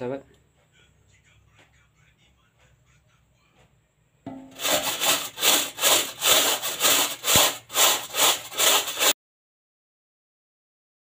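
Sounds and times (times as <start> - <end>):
scouring pad scrubbing metal pot: 4.5 - 9.2.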